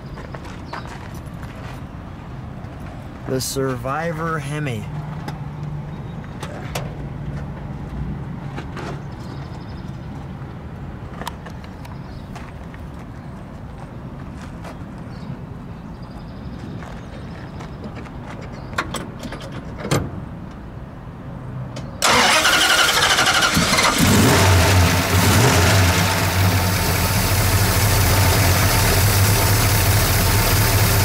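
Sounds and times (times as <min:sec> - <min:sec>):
starter cranking: 0:22.0 - 0:25.8
car engine idling: 0:22.0 - 0:31.0.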